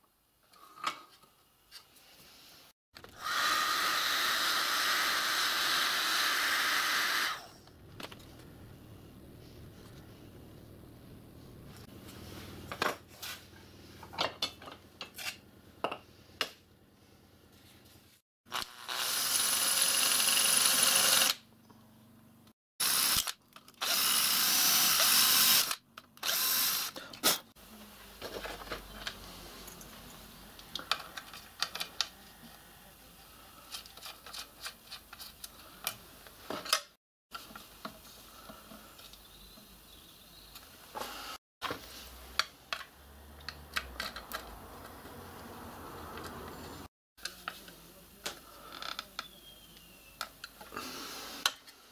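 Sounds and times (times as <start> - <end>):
electric drill running: 3.2 - 7.5, 18.5 - 21.4, 22.8 - 27.0.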